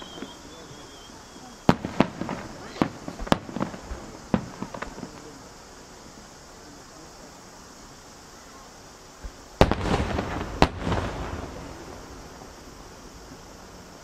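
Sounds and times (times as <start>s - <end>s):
firework booms: 0.0s - 5.8s, 9.2s - 13.5s.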